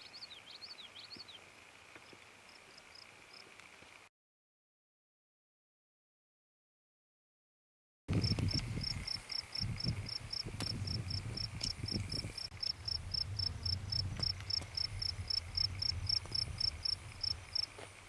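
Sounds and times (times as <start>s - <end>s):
insect chirping: 0.0s - 3.5s, 8.1s - 17.8s.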